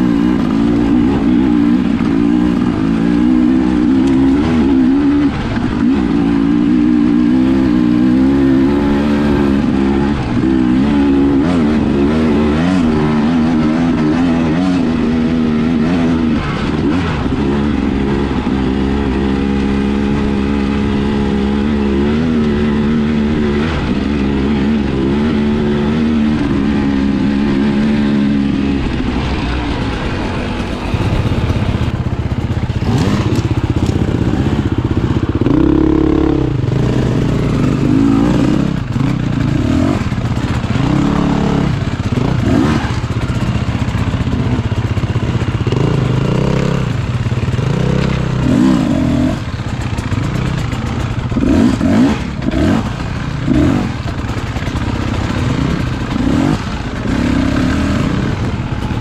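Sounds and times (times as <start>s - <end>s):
dirt bike engine revving: 0.0s - 59.0s
bike clattering over rough ground: 49.3s - 57.1s.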